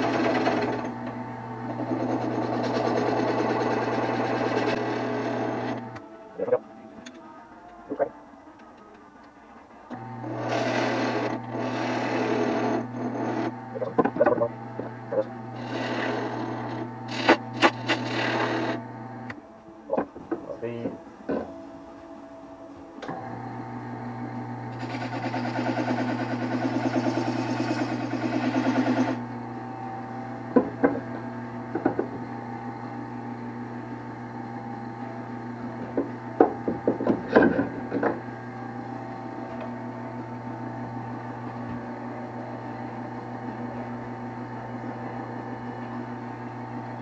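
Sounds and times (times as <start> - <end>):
loud rapid rasping: 0.0 - 0.9, 1.8 - 5.8, 10.2 - 13.5, 15.5 - 18.8, 24.7 - 29.2
electric motor humming: 0.0 - 7.2, 9.9 - 21.6, 22.6 - 47.0.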